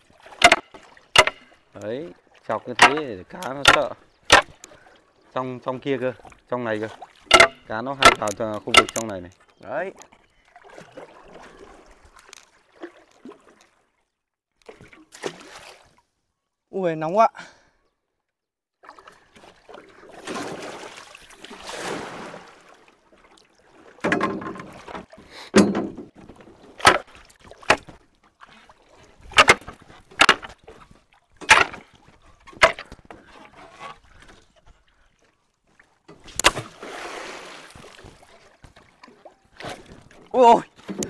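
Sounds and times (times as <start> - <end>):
water splashing: 0.0 - 14.0, 18.8 - 25.3, 26.2 - 41.0
stick knocking and slapping: 0.4 - 1.5, 2.8 - 4.6, 7.3 - 9.1, 29.4 - 30.5, 31.4 - 31.8.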